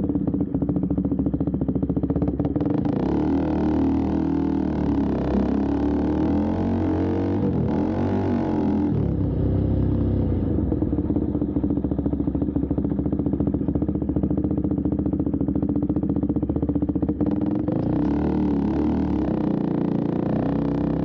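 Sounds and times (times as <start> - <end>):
motorcycle engine idling: 0.0 - 3.8, 9.0 - 18.0.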